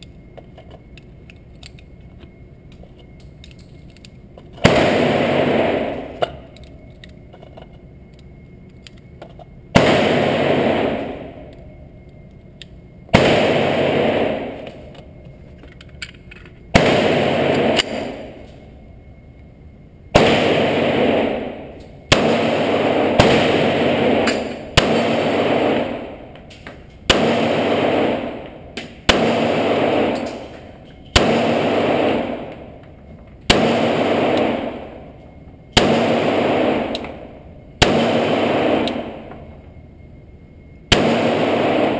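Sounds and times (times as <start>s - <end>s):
pistol shots echoing: 4.6s - 6.5s, 9.7s - 11.5s, 13.1s - 14.9s, 16.7s - 18.5s, 20.1s - 32.8s, 33.5s - 35.1s, 35.7s - 39.5s, 40.9s - 41.9s.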